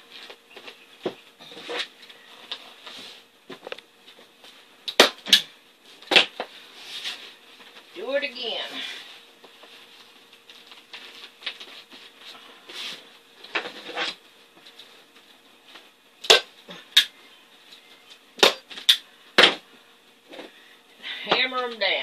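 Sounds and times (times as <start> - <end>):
soft rustling of vinyl cover: 5.8 - 16.0.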